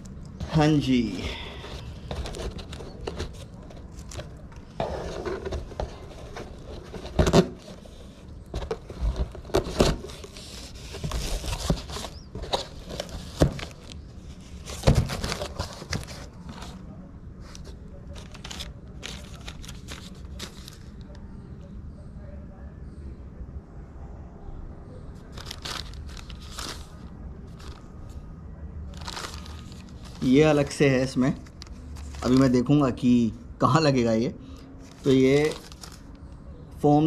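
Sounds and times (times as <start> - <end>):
cardboard scraping and rustling: 1.6 - 16.8, 17.4 - 21.0, 25.3 - 27.8, 28.9 - 32.6, 34.8 - 36.1
plastic wrapping crinkling: 1.6 - 16.8, 18.1 - 21.0, 25.3 - 27.9, 28.9 - 32.6, 34.8 - 36.2.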